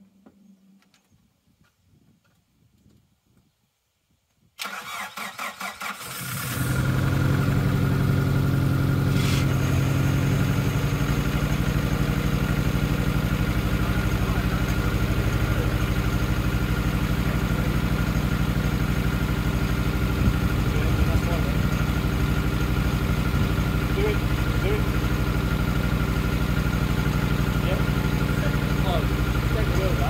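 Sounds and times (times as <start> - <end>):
starter motor cranking: 4.6 - 6.9
car engine idling: 6.2 - 30.0.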